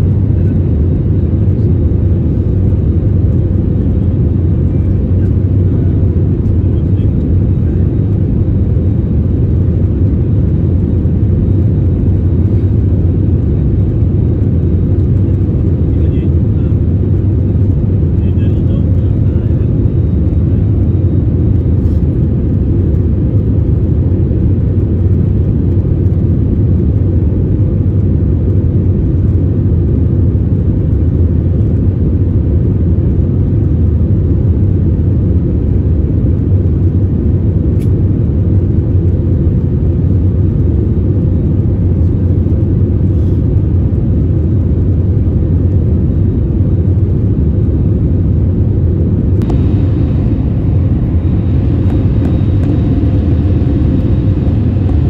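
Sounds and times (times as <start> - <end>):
jet engines low rumble: 0.0 - 55.0
rushing air: 49.0 - 55.0.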